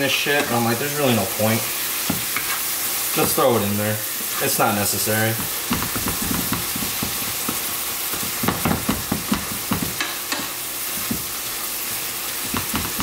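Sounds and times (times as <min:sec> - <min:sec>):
meat sizzling in a skillet: 0:00.0 - 0:13.0
wooden spatula knocking on pan: 0:05.4 - 0:07.6, 0:08.2 - 0:10.2, 0:12.4 - 0:13.0.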